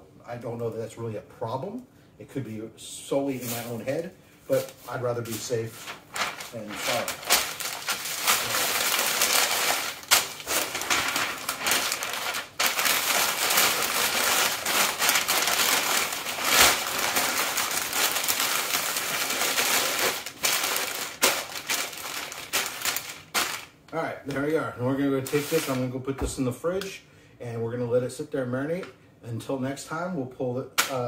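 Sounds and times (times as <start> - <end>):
paper rustling and crinkling: 3.4 - 23.8, 25.2 - 25.9.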